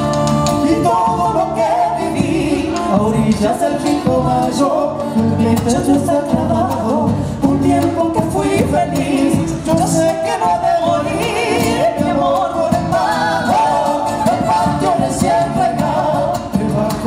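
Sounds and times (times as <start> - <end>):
steady drum beat: 0.0 - 4.7.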